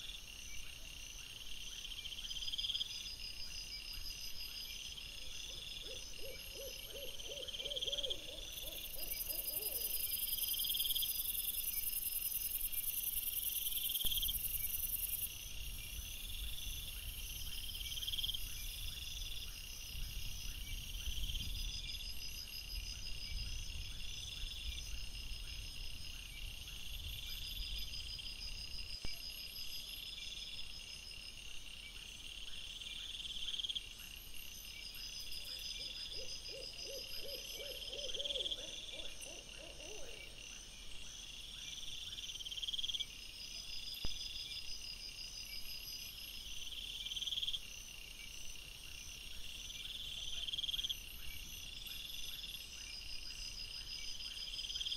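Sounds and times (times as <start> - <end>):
crickets chirping: 0.0 - 54.9.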